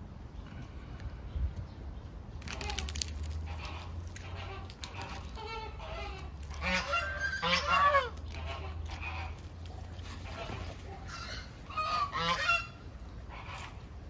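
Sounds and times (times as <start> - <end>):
large birds honking: 3.5 - 9.4, 10.2 - 13.8.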